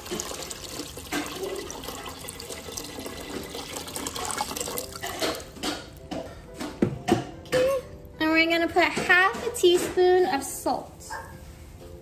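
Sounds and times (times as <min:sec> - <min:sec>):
water pouring into a metal pot: 0:00.0 - 0:05.5.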